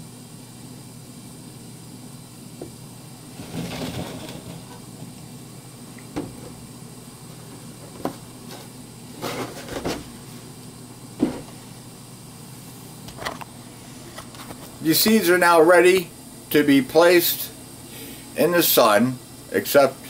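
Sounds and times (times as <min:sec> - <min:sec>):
steady hiss: 0:00.0 - 0:20.0
jug thumping on table: 0:06.1 - 0:06.6, 0:11.2 - 0:11.6
plastic jug clicks and knocks: 0:06.1 - 0:06.6.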